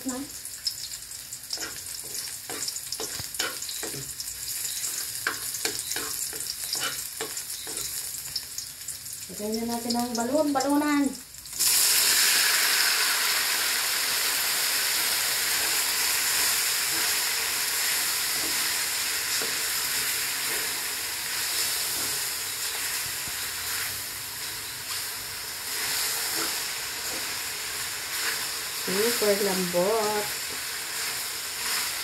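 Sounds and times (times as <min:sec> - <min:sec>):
meat sizzling in hot oil: 0:00.0 - 0:32.0
wooden spoon scraping a wok: 0:01.5 - 0:08.1, 0:16.0 - 0:29.4, 0:30.0 - 0:32.0.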